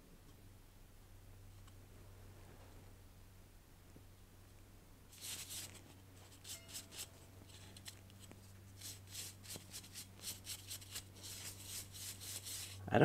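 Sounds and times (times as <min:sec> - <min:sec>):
bristle brush scrubbing metal: 0:05.1 - 0:12.8.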